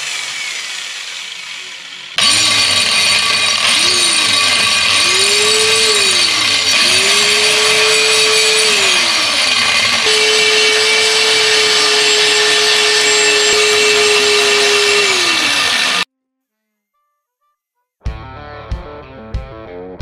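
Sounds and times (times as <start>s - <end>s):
angle grinder grinding metal: 0.0s - 16.1s.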